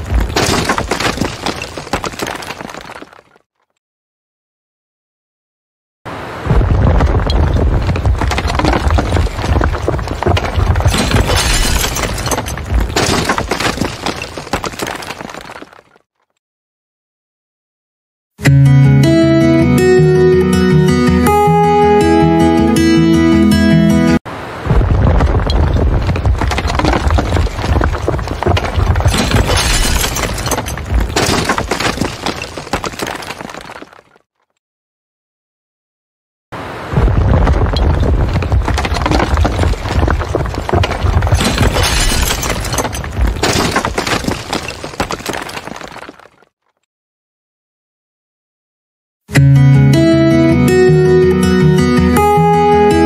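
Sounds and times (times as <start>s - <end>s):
falling debris crashing and cracking: 0.0s - 3.5s, 6.4s - 16.1s, 24.7s - 34.3s, 36.9s - 46.6s
building collapsing rumble: 6.5s - 12.9s, 24.6s - 31.1s, 36.9s - 43.4s.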